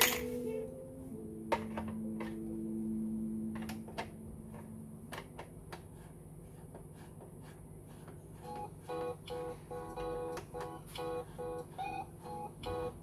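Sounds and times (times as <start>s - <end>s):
low held tone: 0.0s - 5.2s.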